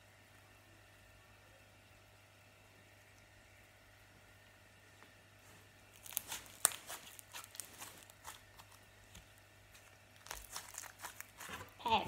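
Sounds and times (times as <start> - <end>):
slime crackling and clicking: 5.9 - 11.5.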